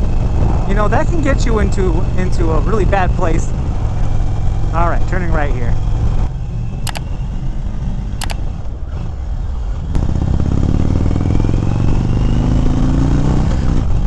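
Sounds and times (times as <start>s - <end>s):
sharp clicks: 6.9s - 7.1s, 8.2s - 8.5s
motorcycle engine accelerating: 9.9s - 14.0s.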